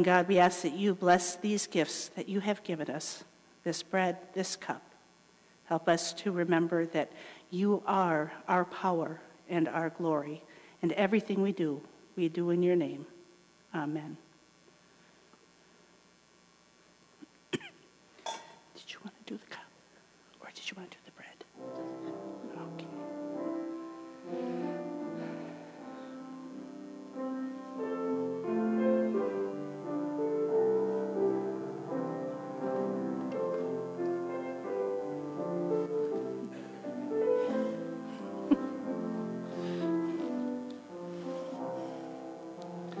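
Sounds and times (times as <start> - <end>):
slow piano music: 21.6 - 43.0.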